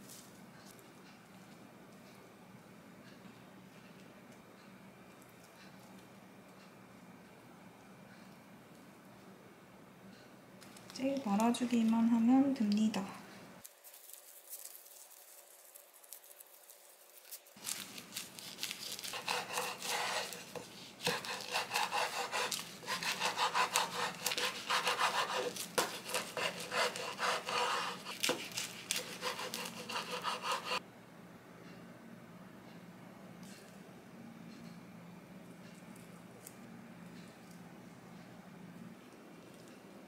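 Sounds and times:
knife slicing on cutting board: 0:18.4 - 0:30.8.

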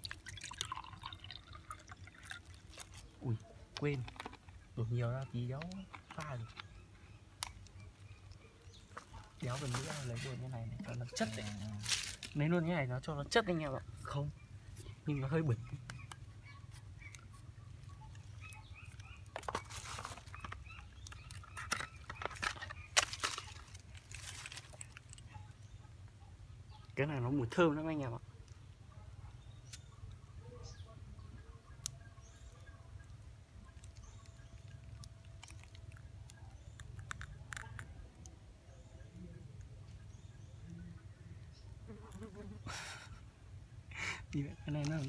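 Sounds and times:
plastic tube clicking and crinkling: 0:00.0 - 0:06.8, 0:18.0 - 0:25.3, 0:33.6 - 0:38.4
faint bird chirps: 0:02.9 - 0:11.8, 0:12.8 - 0:42.7
plastic bag crinkling: 0:22.2 - 0:25.2.

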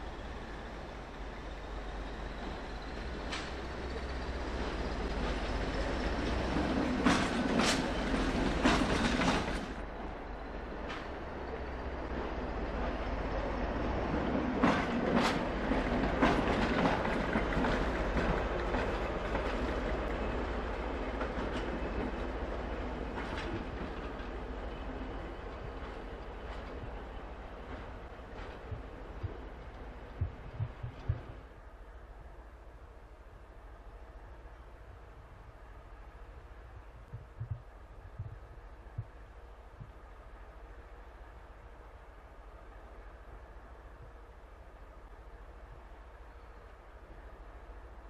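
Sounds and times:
diesel locomotive engine running: 0:00.0 - 0:31.5.

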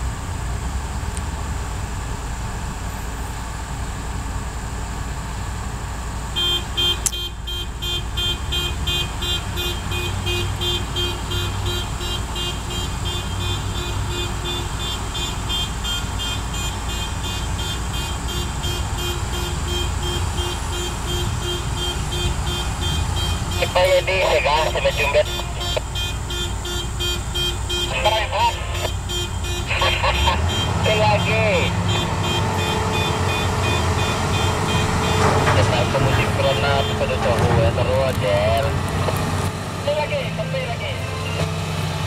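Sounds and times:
diesel engines rumbling: 0:00.0 - 0:42.0
reversing alarm beeping: 0:11.0 - 0:38.3.

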